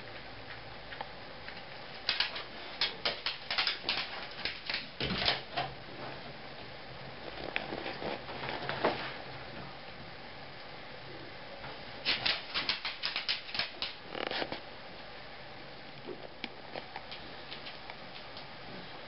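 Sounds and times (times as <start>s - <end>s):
animal claws clicking on tiles: 0.5s - 5.7s, 12.1s - 14.3s.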